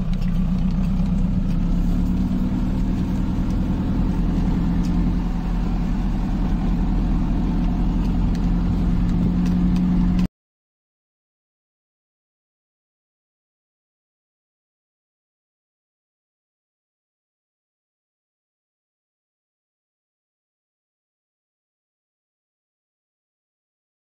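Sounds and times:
car engine droning: 0.0s - 10.3s.

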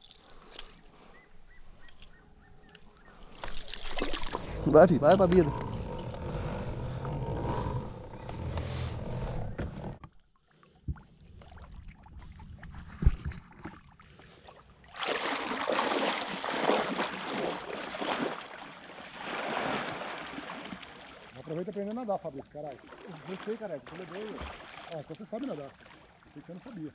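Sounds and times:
person swimming splashing: 3.3s - 6.1s, 14.3s - 21.4s, 22.8s - 26.2s
low rumble: 4.0s - 10.0s.

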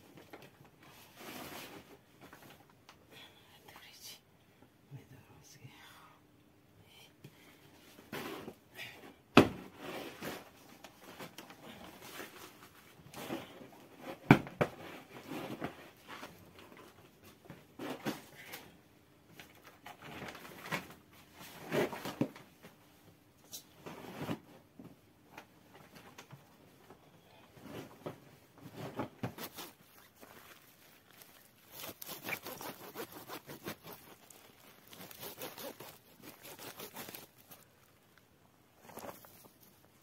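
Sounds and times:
towels rustling and swishing: 27.6s - 38.0s.

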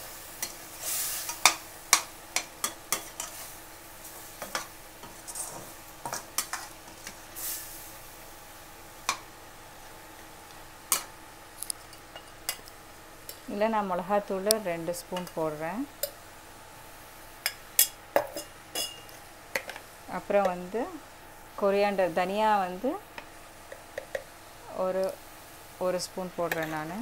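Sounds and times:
food sizzling in a pan: 0.0s - 27.0s
metal ladle clinking on pan: 17.4s - 19.7s.

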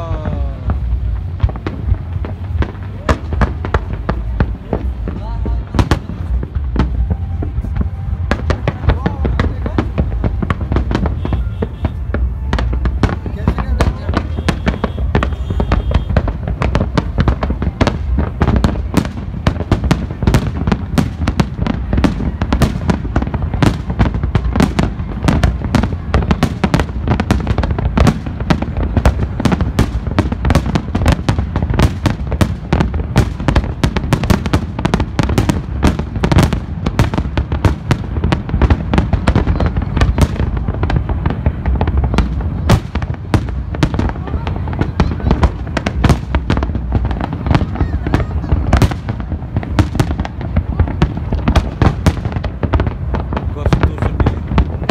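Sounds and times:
fireworks bangs and crackles: 0.0s - 54.9s
steady low rumble: 0.0s - 54.9s.

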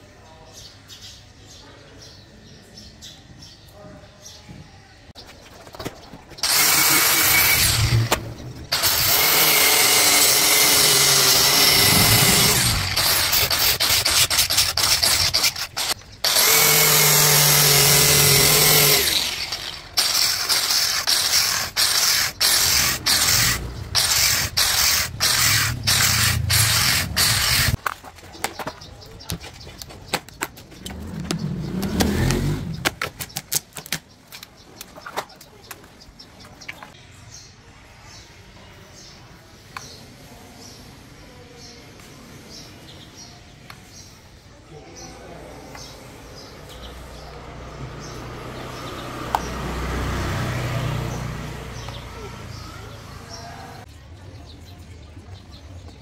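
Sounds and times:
power tool whining: 6.4s - 27.8s.

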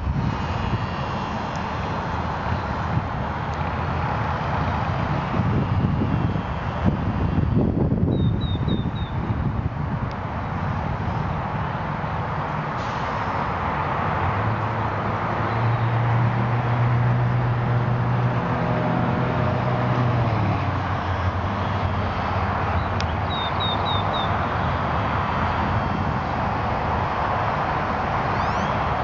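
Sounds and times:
steady wind: 0.0s - 29.0s
traffic rumble: 0.0s - 29.0s
small bird chirping: 22.8s - 24.3s.

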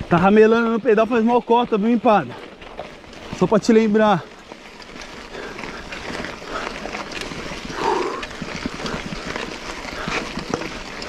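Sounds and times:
bike rattling on rough ground: 0.0s - 11.0s
person breathing hard: 5.2s - 10.5s.

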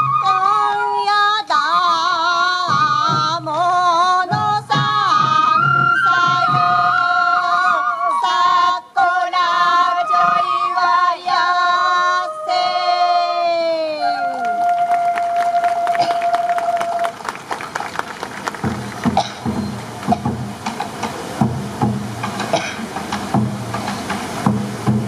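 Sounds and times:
taiko drum beats: 2.6s - 6.9s, 18.5s - 25.0s.

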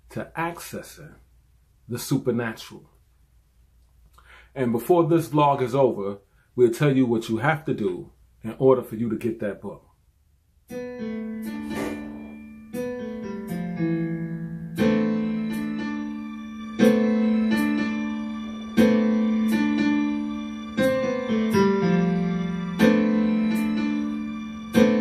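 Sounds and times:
slow electric piano music: 10.7s - 25.0s.

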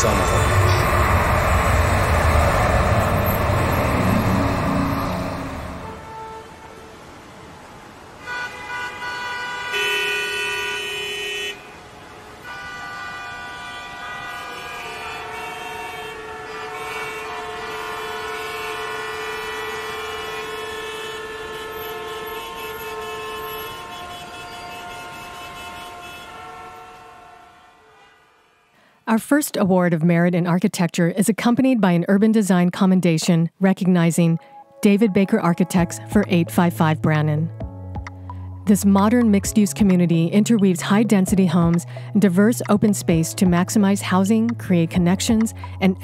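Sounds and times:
vehicle horns honking: 0.0s - 7.1s, 8.2s - 28.9s.

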